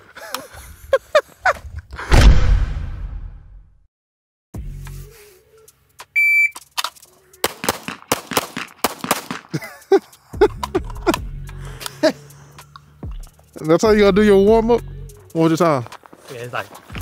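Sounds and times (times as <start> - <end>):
shot timer beep: 6.2 - 6.6
pistol shots: 7.4 - 9.5.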